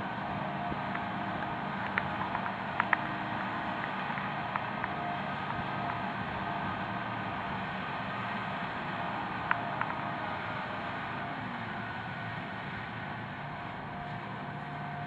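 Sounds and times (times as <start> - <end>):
flail mower cutting grass: 0.0 - 15.0
tractor running under load: 0.0 - 15.0
sharp ticks: 0.9 - 3.1.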